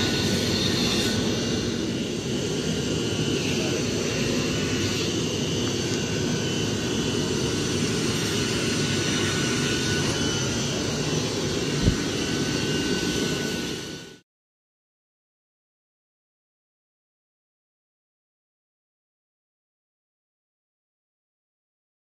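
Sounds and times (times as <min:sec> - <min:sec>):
faint high whine: 0:00.0 - 0:14.2
steady mechanical roar: 0:00.0 - 0:14.2.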